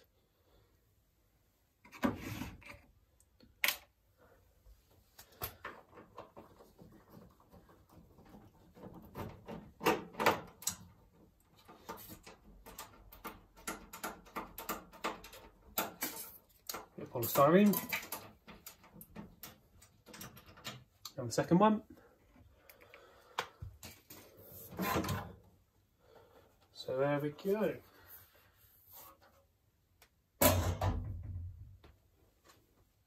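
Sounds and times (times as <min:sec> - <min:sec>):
screwdriver clicks and rattles: 0:11.6 - 0:17.0.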